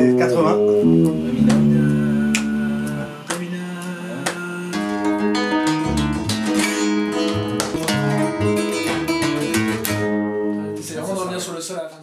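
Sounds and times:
electric bass low notes: 0:00.0 - 0:03.3, 0:04.7 - 0:10.9
acoustic guitar plucking: 0:00.0 - 0:11.2.

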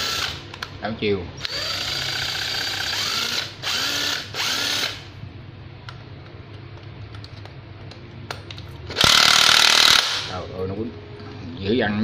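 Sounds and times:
impact driver motor whine: 0:01.4 - 0:05.0, 0:09.0 - 0:10.3.

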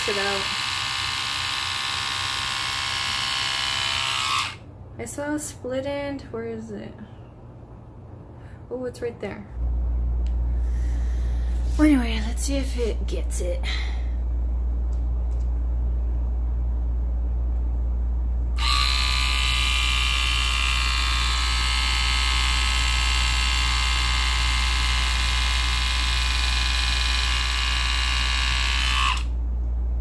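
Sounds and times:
hair trimmer motor running: 0:00.0 - 0:04.6, 0:18.6 - 0:29.4.

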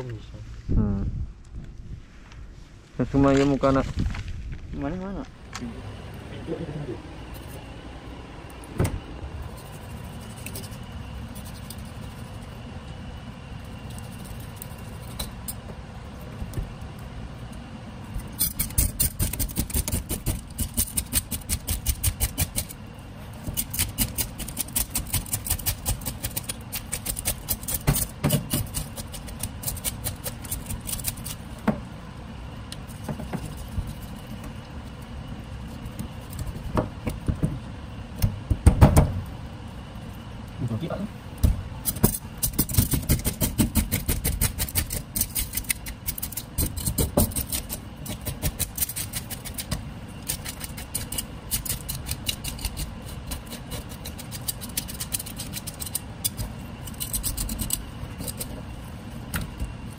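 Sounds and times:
low background hum: 0:00.0 - 0:59.9
knife scraping fish scales: 0:09.5 - 0:12.6, 0:18.2 - 0:22.8, 0:23.4 - 0:31.4, 0:41.8 - 0:58.6.

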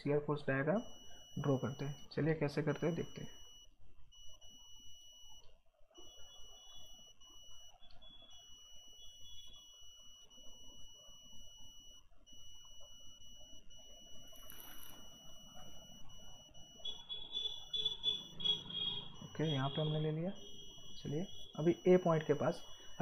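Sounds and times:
high-pitched electrical whine: 0:14.2 - 0:16.1.

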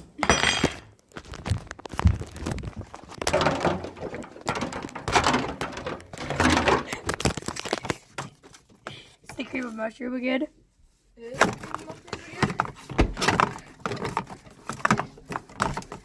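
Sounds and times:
knocks and thumps: 0:00.2 - 0:07.4, 0:11.4 - 0:16.0
phone handling rubbing and rustling: 0:01.0 - 0:08.8, 0:11.4 - 0:16.0.

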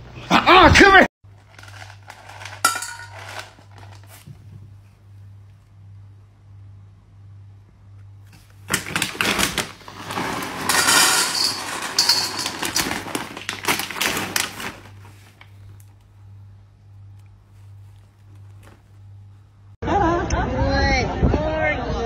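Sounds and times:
kibble rattling into metal bowl: 0:01.4 - 0:04.2, 0:08.7 - 0:15.1.

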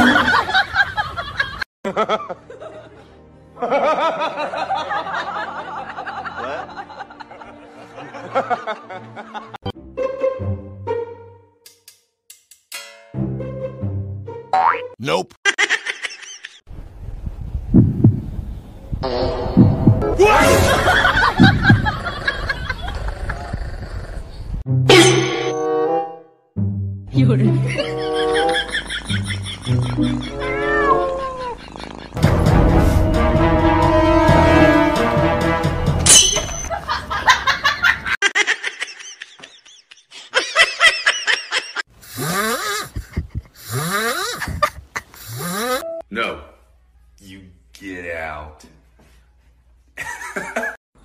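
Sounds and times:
person laughing and giggling: 0:00.0 - 0:04.9, 0:15.4 - 0:16.6, 0:20.4 - 0:23.5, 0:27.5 - 0:32.2, 0:36.7 - 0:45.8, 0:50.0 - 0:50.8
music: 0:01.9 - 0:14.6, 0:24.7 - 0:25.0, 0:25.6 - 0:30.9, 0:32.2 - 0:36.1, 0:45.8 - 0:46.1
amplified heartbeat thumps: 0:17.6 - 0:18.4, 0:19.5 - 0:20.1.

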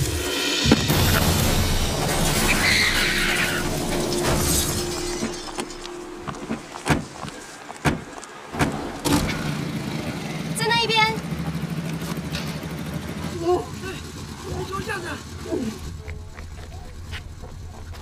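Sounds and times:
tyre screech: 0:00.6 - 0:08.1
sharp knocks and clatters: 0:00.6 - 0:09.7.

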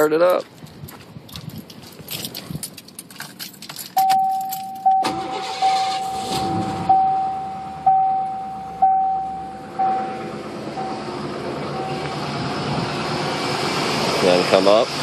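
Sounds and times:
keys rattling: 0:00.3 - 0:04.9
car engine starting: 0:02.0 - 0:15.0
car warning chime dinging: 0:04.0 - 0:11.1
car engine idling: 0:04.4 - 0:15.0.

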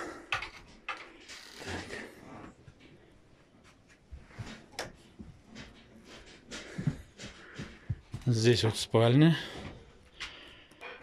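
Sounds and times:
footsteps on wooden floor: 0:04.1 - 0:08.7.

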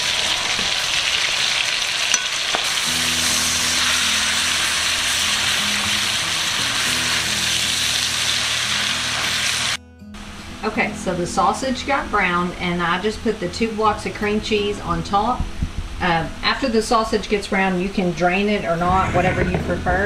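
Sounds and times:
sausage sizzling in skillet: 0:00.0 - 0:09.8.

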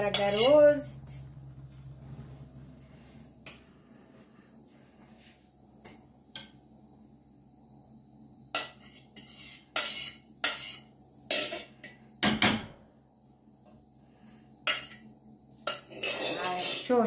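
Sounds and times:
metal fork scraping aluminium pans: 0:00.0 - 0:00.7, 0:08.6 - 0:11.6, 0:15.6 - 0:17.0.

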